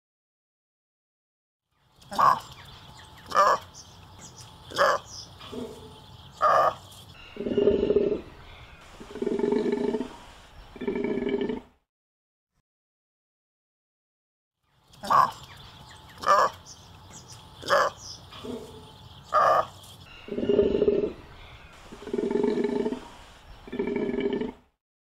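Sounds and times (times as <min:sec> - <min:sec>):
animal calling: 0:02.1 - 0:02.6, 0:03.2 - 0:10.2, 0:15.0 - 0:15.5, 0:16.1 - 0:24.6.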